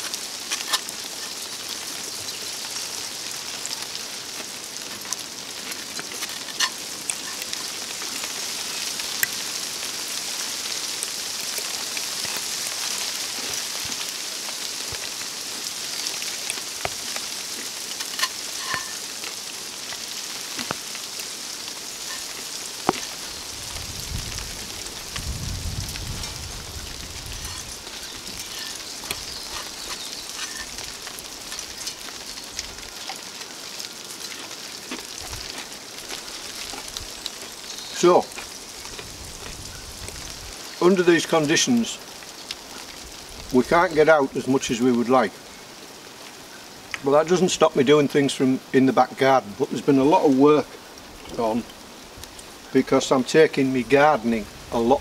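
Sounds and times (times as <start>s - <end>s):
wooden spoon scraping a metal pan: 0.0s - 1.4s, 5.8s - 7.6s, 18.0s - 19.0s, 22.0s - 23.2s, 27.2s - 32.2s
steady hiss: 0.0s - 55.0s.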